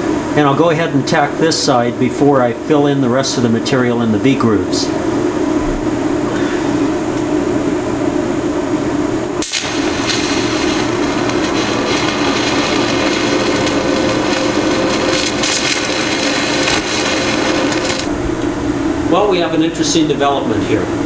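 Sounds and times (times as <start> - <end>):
steady low hum: 0.0 - 21.0
welding arc hissing: 9.4 - 18.2.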